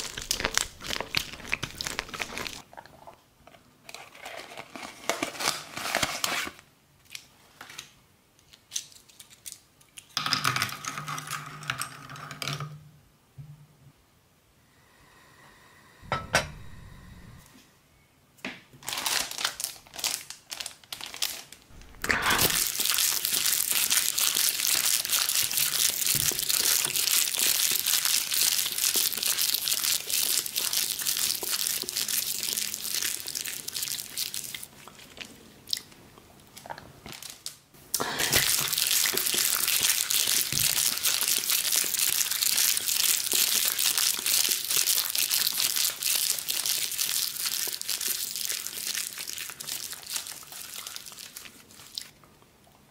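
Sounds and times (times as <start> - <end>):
plastic sheet crinkling: 0.0 - 2.6, 3.9 - 7.9, 18.8 - 35.3, 37.0 - 52.1.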